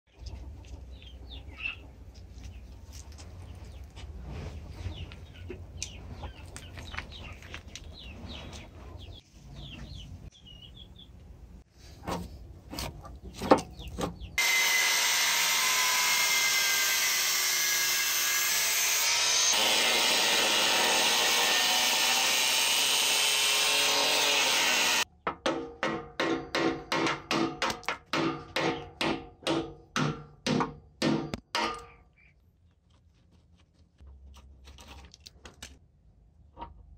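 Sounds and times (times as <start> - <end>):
birds chirping: 0.1 - 11.4, 13.1 - 14.4
hands clicking on gravel: 5.8 - 8.0
angle grinder cutting steel: 14.4 - 25.0.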